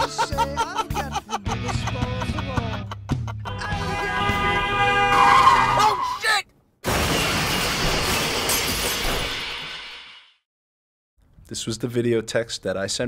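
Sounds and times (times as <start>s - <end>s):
man's voice: 0.0s - 3.0s
music: 0.0s - 4.9s
glass shattering crash: 6.8s - 10.2s.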